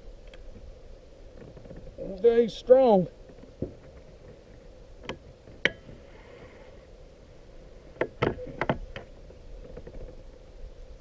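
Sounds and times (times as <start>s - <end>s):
knocks and clicks of kayak handling: 3.2s - 6.0s, 7.9s - 10.2s.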